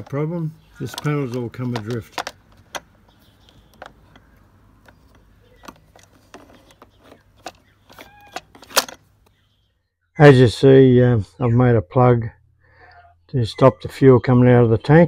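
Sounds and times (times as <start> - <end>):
plastic parts clicking and knocking: 0.8 - 9.4.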